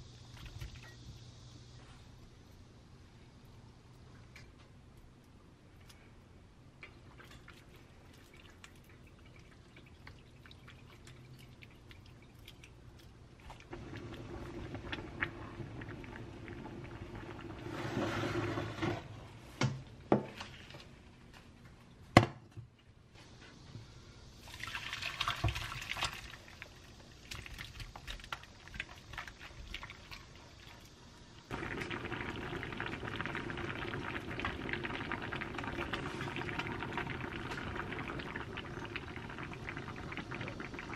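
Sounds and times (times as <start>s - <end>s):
stew bubbling in a pan: 6.8s - 19.2s, 24.3s - 40.9s
liquid sloshing and pouring: 7.0s - 19.0s, 24.4s - 30.9s, 31.5s - 40.9s.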